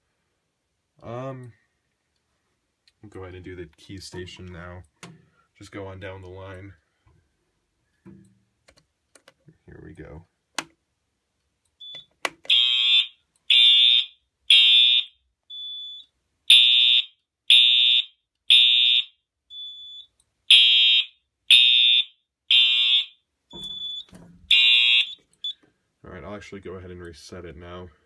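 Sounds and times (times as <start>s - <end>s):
fire alarm horn blasts: 12.5s - 25.2s.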